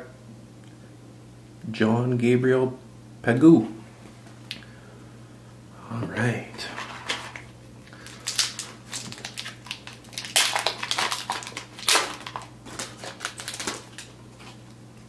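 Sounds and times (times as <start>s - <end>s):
foil wrapper tearing and crinkling: 7.1s - 14.6s.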